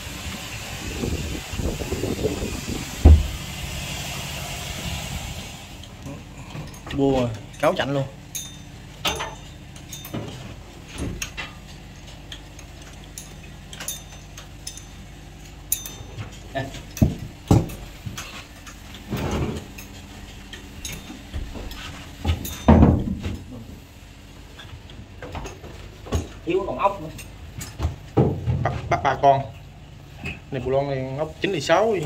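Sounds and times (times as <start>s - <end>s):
low steady hum: 0.0s - 32.0s
metallic clinks of tools and parts: 6.5s - 23.5s, 25.3s - 27.8s.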